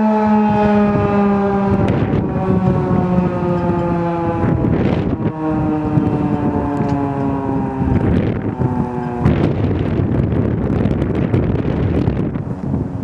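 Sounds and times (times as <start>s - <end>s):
warning siren steady tone: 0.0s - 13.0s
wind buffeting microphone: 0.0s - 13.0s.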